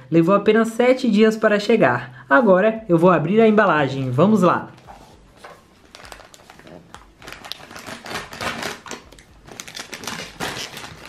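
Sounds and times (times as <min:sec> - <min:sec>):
packaging crinkling and tearing: 0:05.3 - 0:11.0.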